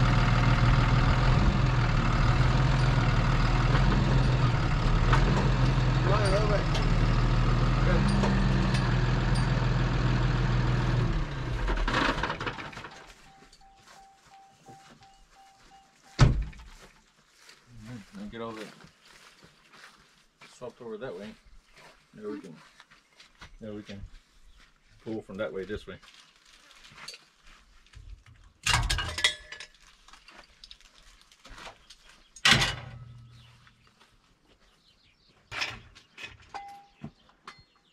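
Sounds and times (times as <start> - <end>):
truck engine idling: 0.0 - 16.5
sharp ringing metal clank: 6.0 - 6.9
door chime beeping: 12.9 - 16.5
car door slamming: 16.2 - 16.6
steel pieces clanking: 28.6 - 30.8.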